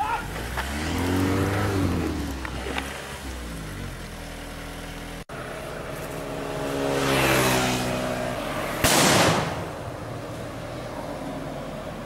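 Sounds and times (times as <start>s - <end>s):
vehicle engine passing: 0.2s - 12.0s
firecracker bang: 8.8s - 9.8s.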